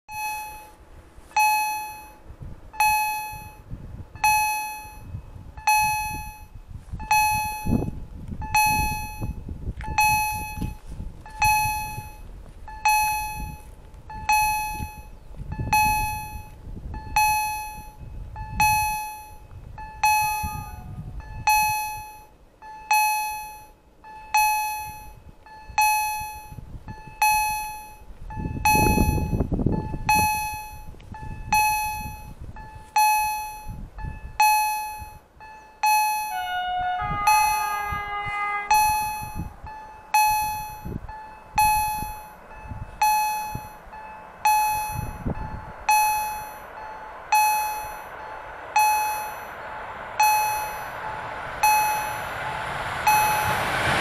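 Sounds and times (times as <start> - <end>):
level crossing bell ringing: 34.5 - 49.6
low rumble: 36.3 - 54.0.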